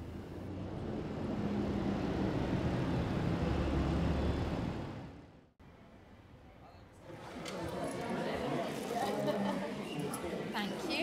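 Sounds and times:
bus and car engines in traffic: 0.0s - 5.5s.

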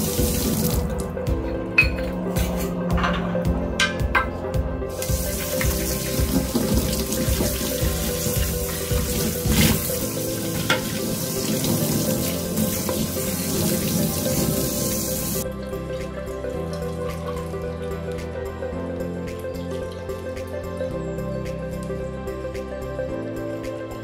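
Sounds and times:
tap water running onto dish: 0.0s - 1.1s, 5.0s - 15.4s.

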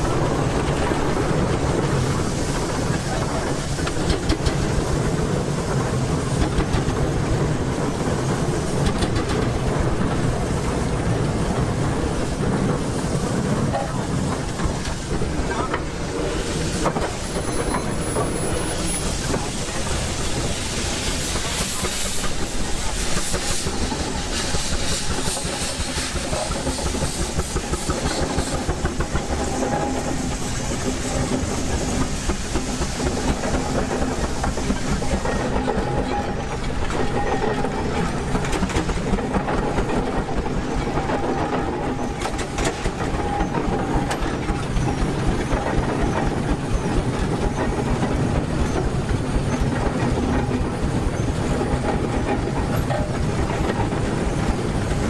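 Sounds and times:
steam engine exhaust beats: 0.0s - 55.0s
steam hissing: 0.0s - 55.0s
clatter of gearing and iron wheels: 25.4s - 55.0s.

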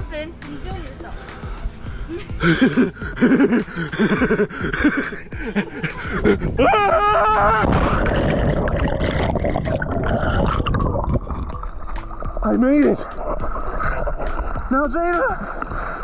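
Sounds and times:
splash into water: 7.4s - 12.4s
muffled underwater rush and bubbles: 7.6s - 16.0s.

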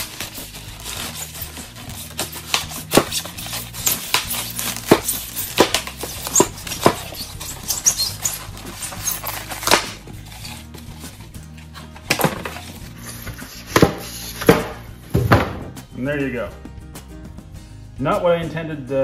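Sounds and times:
machete hacking through foam board: 0.8s - 10.6s, 13.2s - 15.7s.

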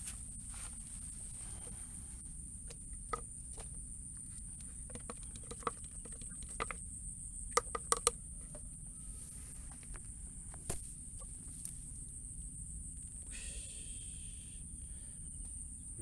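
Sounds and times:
water dripping into bucket: 4.8s - 6.8s, 7.5s - 8.2s.

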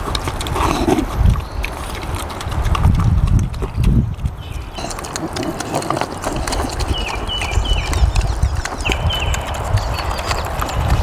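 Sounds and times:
piglets chomping food: 0.0s - 11.0s
piglets grunting: 4.5s - 11.0s.

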